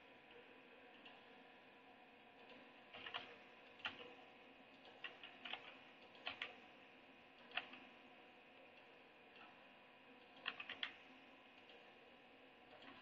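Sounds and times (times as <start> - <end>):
computer keys clicking: 3.0 - 4.1, 5.0 - 6.5, 10.4 - 11.0.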